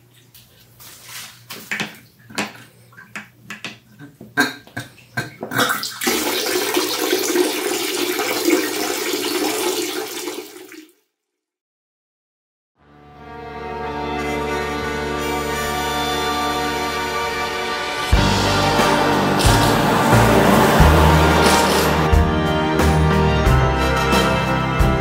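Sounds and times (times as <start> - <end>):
water rushing: 16.7 - 22.2
water trickling and splashing: 18.8 - 22.1.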